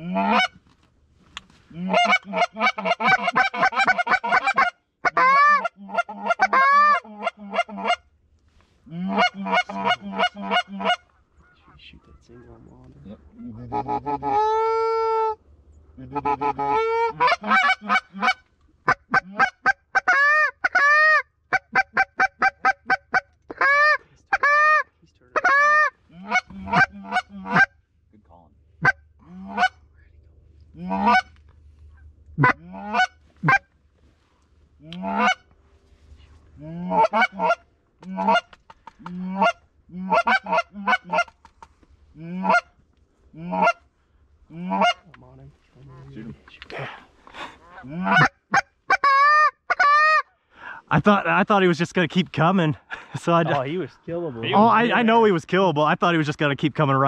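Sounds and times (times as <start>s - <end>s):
geese honking: 0.0s - 0.6s, 1.8s - 8.1s, 9.0s - 12.5s, 13.5s - 15.4s, 16.0s - 24.8s, 25.4s - 27.7s, 28.8s - 29.8s, 30.8s - 31.4s, 32.4s - 33.7s, 34.8s - 35.5s, 36.8s - 41.7s, 42.4s - 42.7s, 43.4s - 43.8s, 44.6s - 45.0s, 47.6s - 50.2s
faint low wind rumble: 7.3s - 20.7s, 24.0s - 49.0s.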